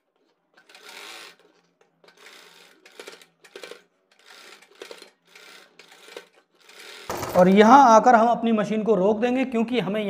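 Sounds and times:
sewing machine stitching: 0.1s - 7.9s.

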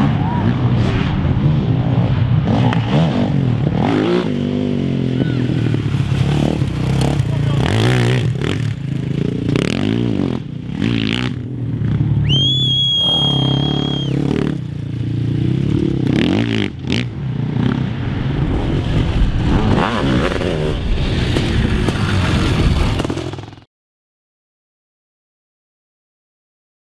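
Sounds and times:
motorcycle engines revving: 0.0s - 23.7s
high steady whistle-like tone: 12.2s - 14.2s.

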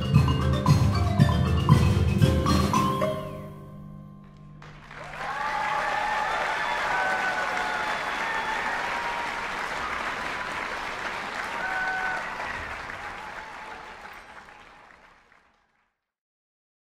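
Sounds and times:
audience applauding: 4.4s - 16.1s
short cheers: 5.0s - 14.9s.

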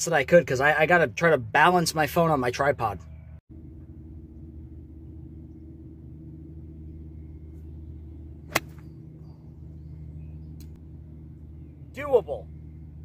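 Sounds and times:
steady low hum: 2.9s - 13.0s
golf club striking ball: 8.5s - 9.0s.

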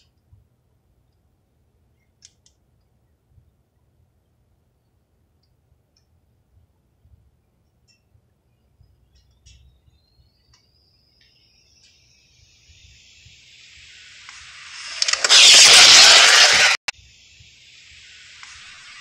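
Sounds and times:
rc car passing rush: 12.8s - 16.9s
electric motor whine: 14.6s - 16.8s.

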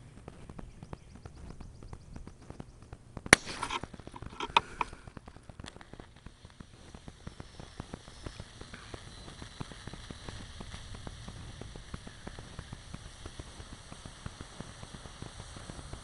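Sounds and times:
battery crackling and clicking: 0.0s - 16.0s
hiss: 3.3s - 16.0s.

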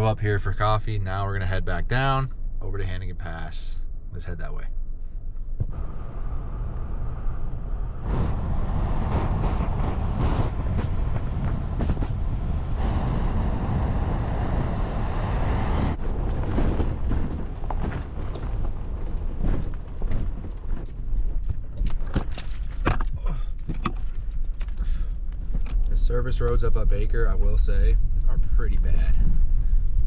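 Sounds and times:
car knocks and rattles over bumps: 5.6s - 26.6s
tyre and wind noise: 5.6s - 30.0s.

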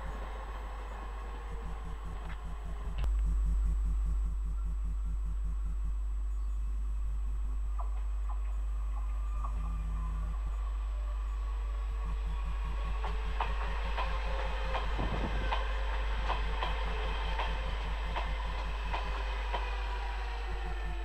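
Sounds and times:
electric train passing: 0.0s - 3.1s, 8.0s - 21.0s
train wheels clicking over rail joints: 12.1s - 21.0s.

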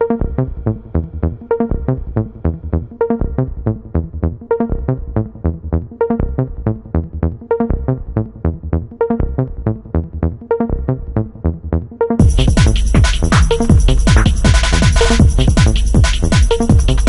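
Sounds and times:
electronic dance music: 12.2s - 17.0s.

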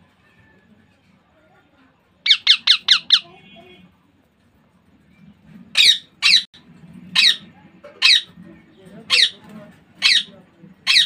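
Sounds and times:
parakeet squawking: 2.2s - 3.4s, 5.8s - 6.5s, 7.1s - 8.4s, 9.1s - 9.4s, 10.0s - 11.0s.

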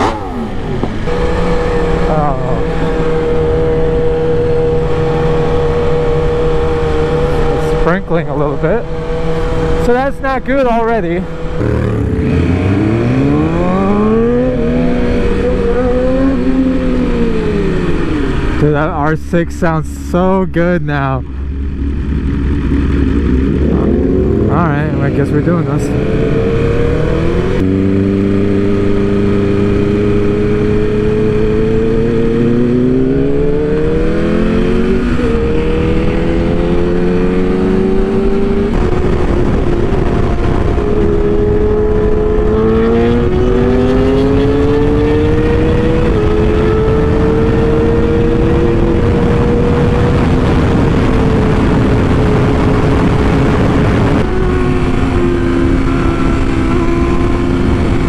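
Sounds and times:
motorcycle engine shifting gears: 0.0s - 18.8s, 21.2s - 58.0s
heavy wind rush: 0.0s - 58.0s.

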